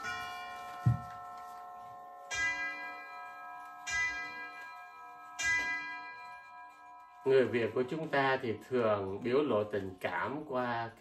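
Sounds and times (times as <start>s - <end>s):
bell-like chime music: 0.0s - 8.6s.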